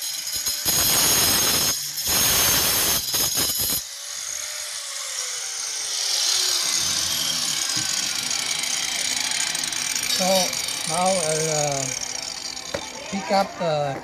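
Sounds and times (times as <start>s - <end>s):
angle grinder cutting stone: 0.0s - 14.0s.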